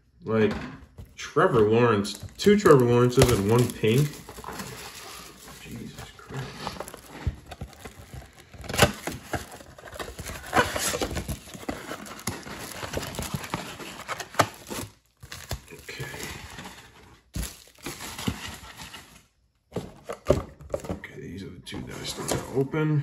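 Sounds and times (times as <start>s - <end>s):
plastic wrappers crinkling: 1.5s - 19.2s
cardboard box tearing: 2.7s - 19.0s.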